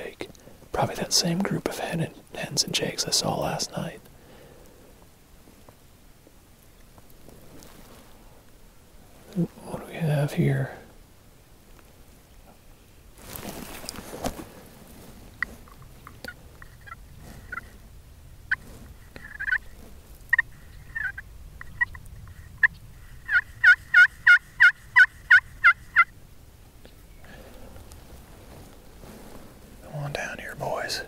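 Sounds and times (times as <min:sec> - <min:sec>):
brief rustle: 0:13.2 - 0:17.8
wild turkeys clucking and yelping: 0:15.4 - 0:26.2.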